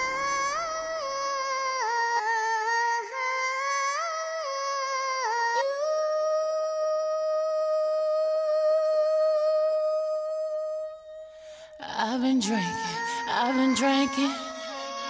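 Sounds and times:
high wordless singing voice: 0.0s - 15.0s.

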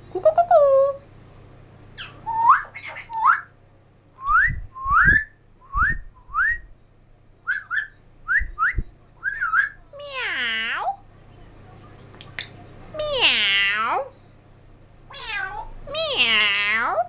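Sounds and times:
parrot whistling: 2.0s - 3.5s, 7.5s - 9.8s
low thumps: 4.2s - 6.6s.

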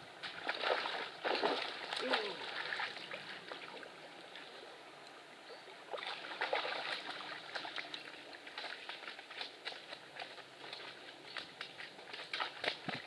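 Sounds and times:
water splashing and trickling: 0.0s - 13.0s.

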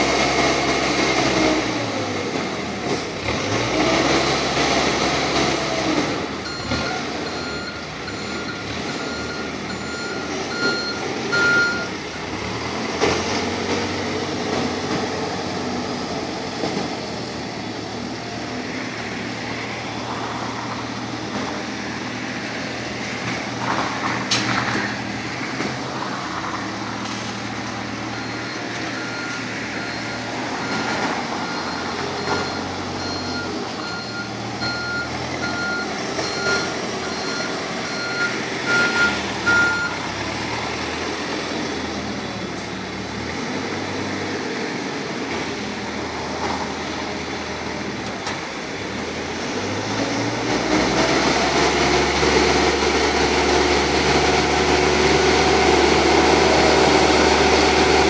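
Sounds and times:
diesel engine running: 0.0s - 58.0s
reversing alarm beeping: 6.4s - 12.0s, 28.1s - 40.0s.

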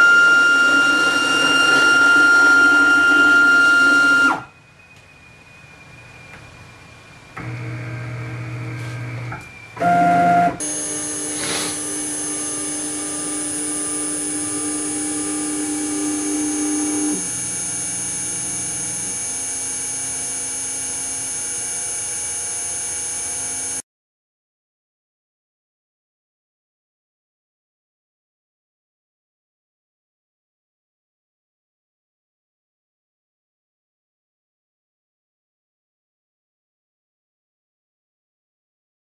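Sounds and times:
stepper motors whining: 0.0s - 23.8s.

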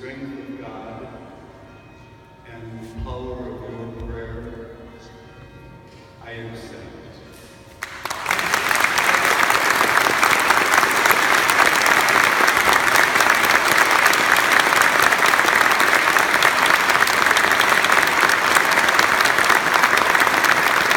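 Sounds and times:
audience applauding: 7.8s - 20.9s.

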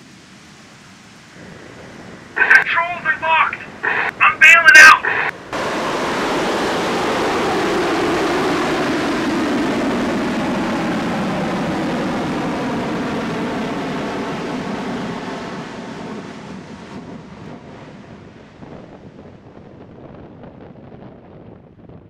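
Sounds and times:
jet airliner passing overhead: 1.2s - 21.6s.

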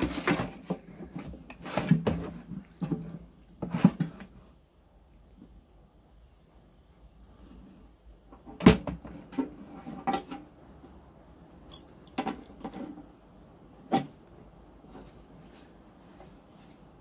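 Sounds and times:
wrench clinking on nut: 11.7s - 12.4s.

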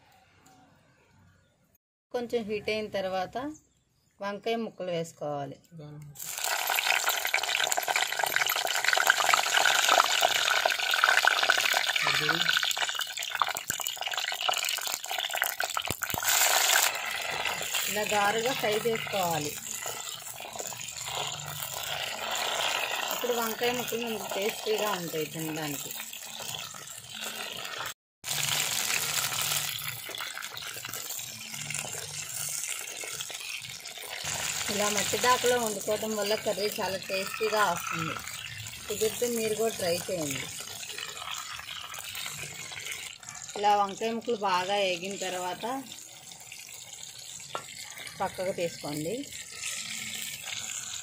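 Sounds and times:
vegetables sizzling in hot oil: 6.2s - 51.0s.

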